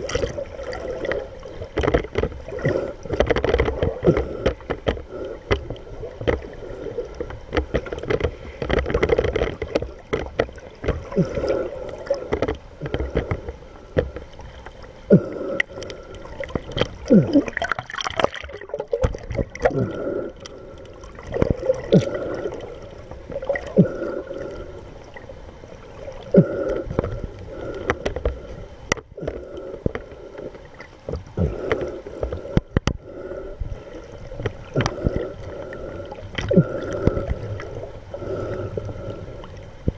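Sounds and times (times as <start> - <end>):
underwater clicks and pops: 0.0 - 14.5, 15.1 - 22.6, 31.0 - 33.0, 34.4 - 35.5, 36.3 - 37.8
faint steady hum: 0.0 - 39.9
underwater water rushing and gurgling: 0.0 - 39.9.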